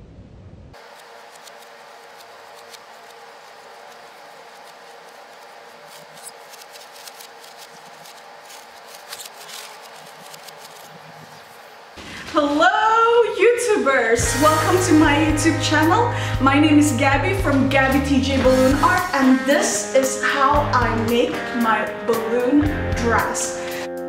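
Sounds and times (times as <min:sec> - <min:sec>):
marker scratching on balloons: 0:00.8 - 0:11.7.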